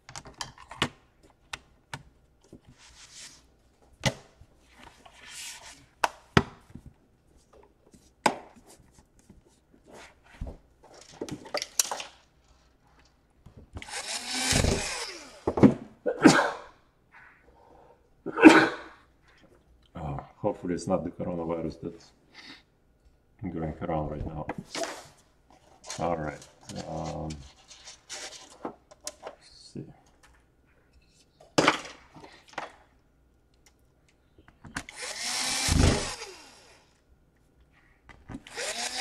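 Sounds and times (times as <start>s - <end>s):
person coughing: 16.1s - 16.8s, 18.3s - 19.0s.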